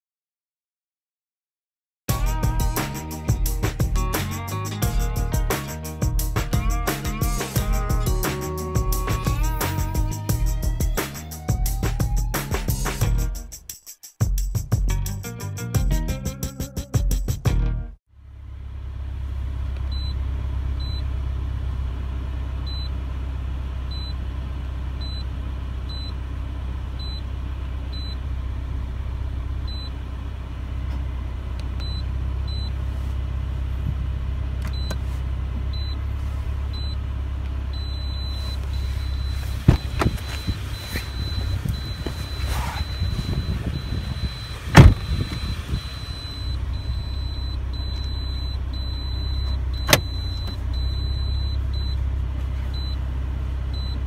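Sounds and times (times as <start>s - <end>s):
car engine idling: 2.1s - 13.5s, 18.2s - 54.0s
loud thump: 39.6s - 40.6s, 44.7s - 45.6s, 49.8s - 50.4s
high-pitched timer beeps: 40.3s - 52.0s.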